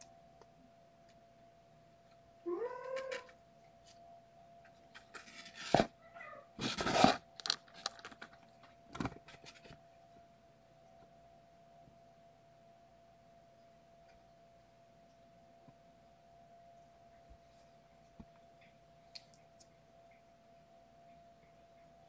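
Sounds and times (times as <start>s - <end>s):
kitten meowing: 2.5s - 3.4s, 6.0s - 6.5s.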